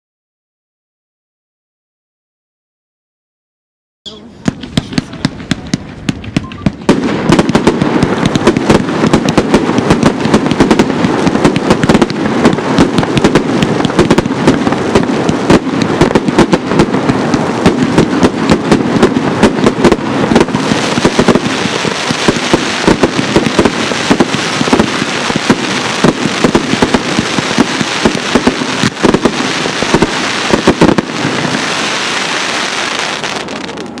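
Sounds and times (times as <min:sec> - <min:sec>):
fireworks crackling: 0:04.1 - 0:34.0
fireworks launch thumps: 0:04.2 - 0:16.9.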